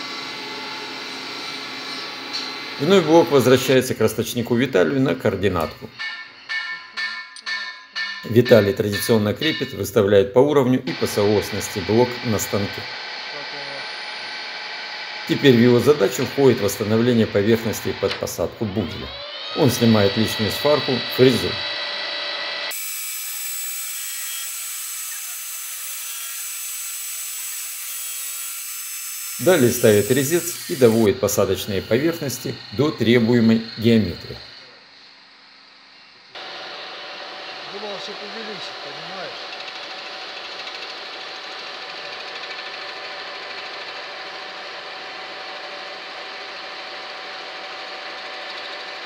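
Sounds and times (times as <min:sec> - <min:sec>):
milling machine cutting metal: 0:10.9 - 0:34.9, 0:36.3 - 0:49.0.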